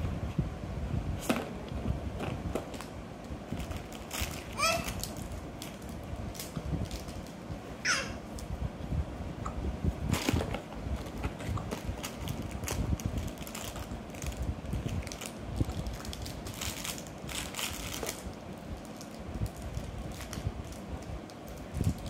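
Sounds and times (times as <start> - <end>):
foil-wrapped chocolates crinkling: 3.5 - 7.4, 10.1 - 22.0.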